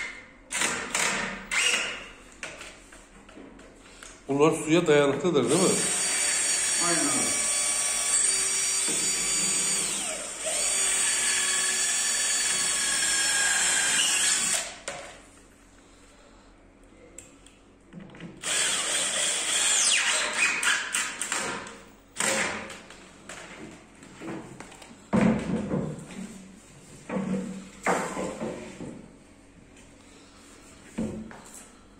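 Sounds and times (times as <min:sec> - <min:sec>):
cordless drill drilling into wood panel: 0:00.5 - 0:02.0, 0:05.5 - 0:14.8, 0:18.4 - 0:21.0.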